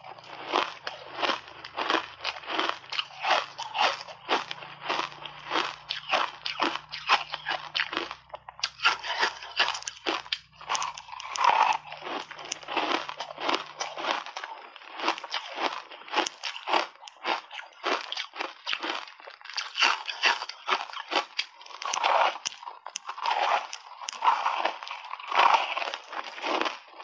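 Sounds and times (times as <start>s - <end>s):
ice crunching between teeth: 0.0s - 27.0s.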